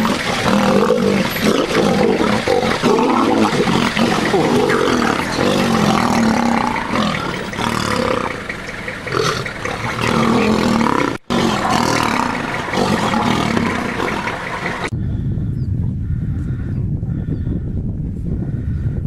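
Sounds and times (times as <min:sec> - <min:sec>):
lions snarling and growling: 0:00.0 - 0:14.9.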